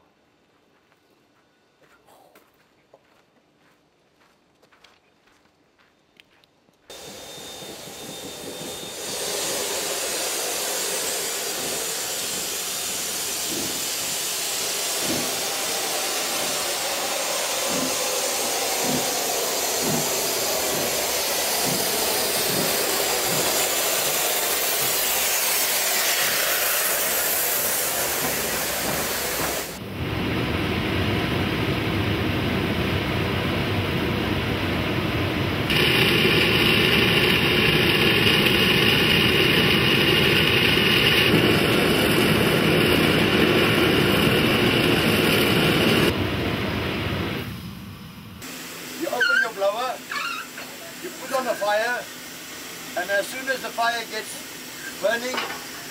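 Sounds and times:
steam hissing: 6.9s - 30.3s, 35.7s - 55.9s
deep rushing roar of steam: 6.9s - 55.9s.

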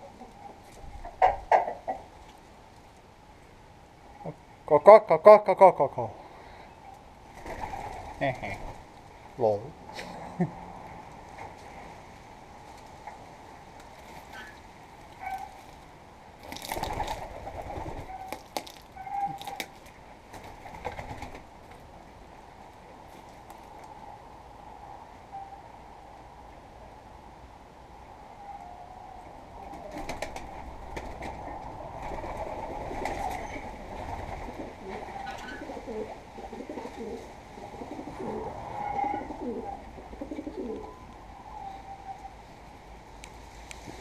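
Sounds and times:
wings flapping and rustling: 7.2s - 9.0s, 13.8s - 21.9s, 29.6s - 38.2s
pigeons cooing: 29.6s - 42.3s.

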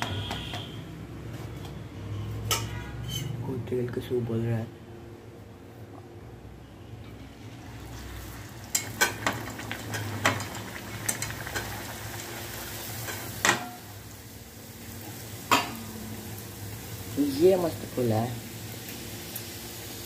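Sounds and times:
oil sizzling: 7.0s - 20.0s.

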